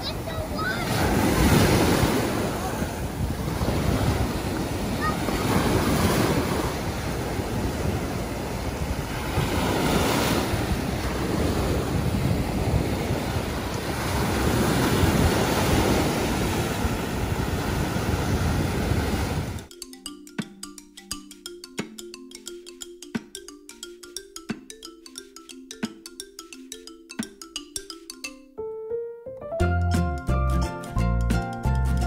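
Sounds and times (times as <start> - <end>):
surf washing over sand: 0.0 - 19.7
wind buffeting microphone: 0.0 - 19.7
music: 19.7 - 32.0.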